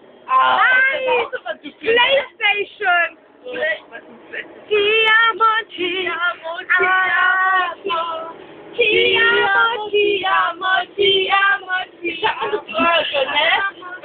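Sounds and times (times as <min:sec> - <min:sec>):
women singing drunkenly: 0:04.7 - 0:14.0.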